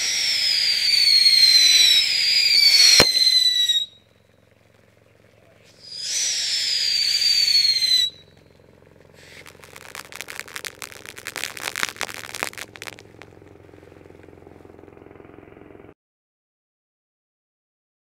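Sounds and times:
firework hiss: 0.0s - 3.7s, 5.8s - 8.2s, 9.2s - 13.5s
firework crackling: 0.0s - 3.9s, 5.8s - 8.3s, 9.0s - 14.4s
firework shrill whistle: 0.0s - 4.0s, 5.8s - 8.3s, 9.2s - 13.4s.

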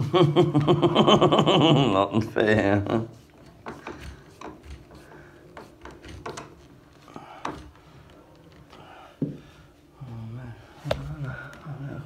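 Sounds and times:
screwdriver clicking and knocking: 3.5s - 5.0s, 5.6s - 6.7s.

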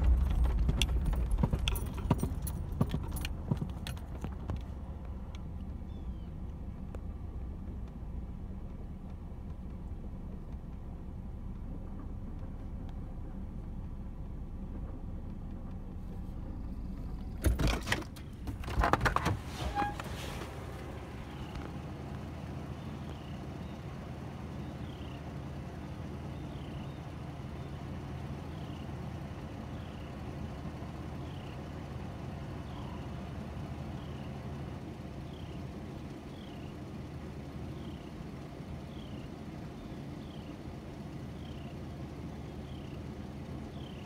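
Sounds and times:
idling car hum: 0.0s - 44.0s
bird chirping: 5.8s - 6.4s, 22.7s - 23.9s, 24.5s - 25.3s, 26.2s - 27.8s, 35.2s - 36.8s, 37.7s - 38.2s, 38.8s - 40.6s, 41.2s - 41.8s, 42.4s - 44.0s.

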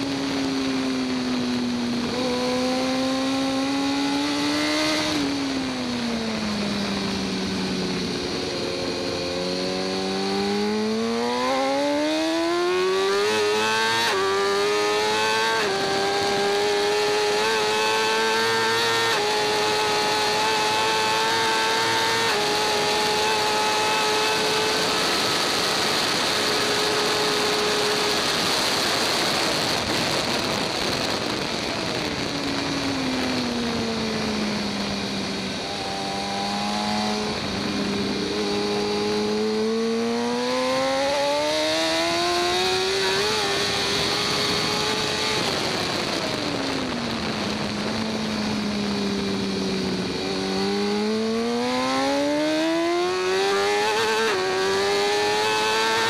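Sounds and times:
motorcycle engine revving: 0.0s - 56.0s
wind rush on microphone: 13.0s - 56.0s.

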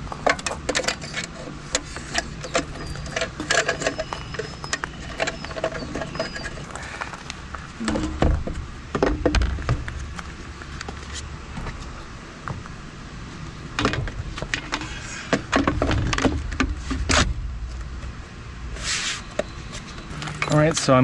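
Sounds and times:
plastic and metal parts rattling: 0.3s - 6.8s.

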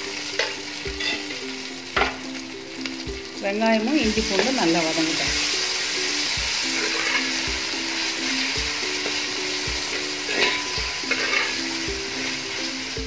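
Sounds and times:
soft background music with beat: 0.0s - 13.0s
vegetables sizzling in hot oil: 0.0s - 13.0s
ladle scraping pan: 6.7s - 7.5s, 8.4s - 12.5s.

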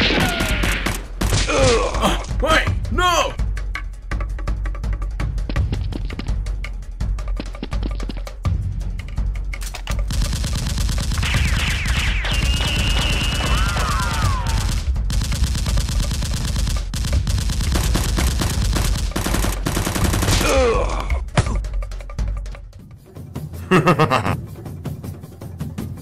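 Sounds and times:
automatic gunfire: 10.0s - 20.7s.

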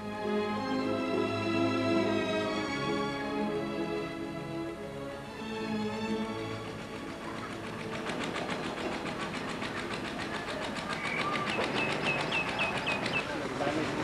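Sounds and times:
music: 0.0s - 10.2s
rapid mechanical clatter: 6.9s - 14.0s.

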